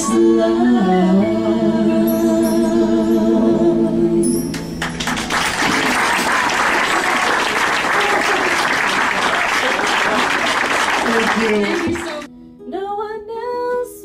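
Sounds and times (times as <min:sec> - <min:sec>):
audience applauding: 0:04.8 - 0:12.3.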